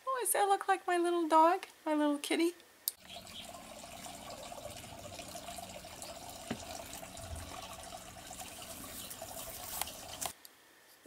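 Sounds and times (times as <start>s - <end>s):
faint trickle of running water: 3.0s - 10.4s.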